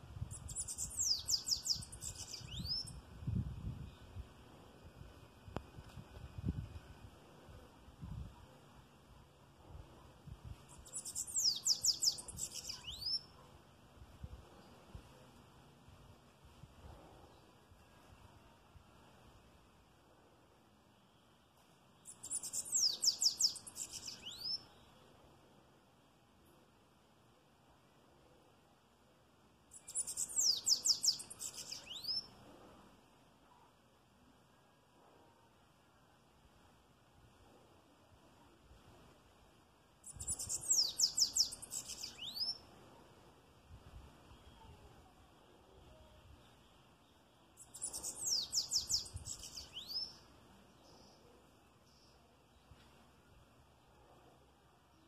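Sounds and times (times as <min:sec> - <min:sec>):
bird singing high rapid song: 0:00.2 - 0:04.2, 0:10.6 - 0:13.4, 0:22.0 - 0:25.0, 0:29.7 - 0:32.4, 0:40.0 - 0:42.7, 0:45.9 - 0:51.2
bird singing high thin notes: 0:47.6 - 0:50.2.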